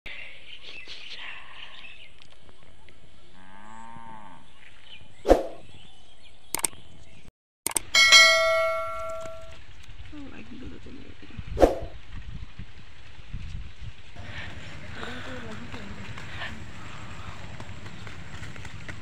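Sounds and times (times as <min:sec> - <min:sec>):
faint outdoor background: 0:00.1 - 0:19.0
mouse clicks: 0:06.6 - 0:06.8
bell ding: 0:07.7 - 0:09.6.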